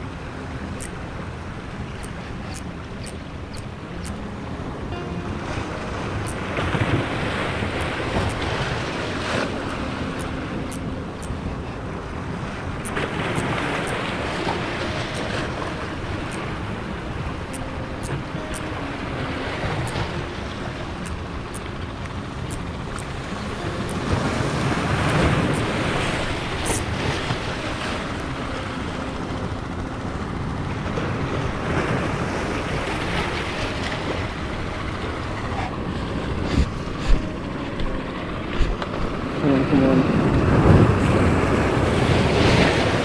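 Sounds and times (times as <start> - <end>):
wind buffeting microphone: 5.8 - 39.4.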